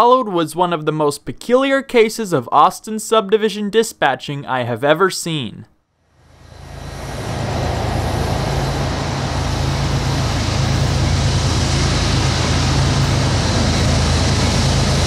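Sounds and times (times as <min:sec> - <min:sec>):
oncoming freight train: 0:06.2 - 0:15.0
diesel locomotives idling: 0:06.3 - 0:15.0.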